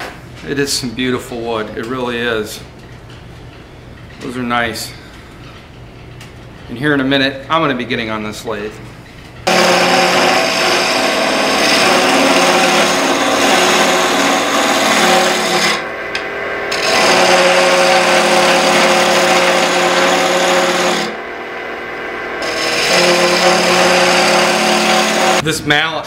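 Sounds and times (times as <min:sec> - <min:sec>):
gouge scraping wood: 0:09.5 - 0:15.8, 0:16.7 - 0:21.1, 0:22.4 - 0:25.4
wood lathe humming: 0:09.5 - 0:21.7, 0:22.3 - 0:25.4.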